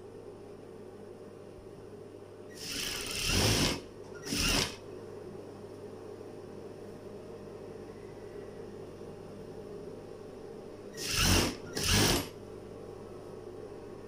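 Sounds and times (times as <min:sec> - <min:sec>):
steady low hum: 0:00.0 - 0:14.0
sewing machine stitching: 0:02.6 - 0:04.8, 0:11.0 - 0:12.3.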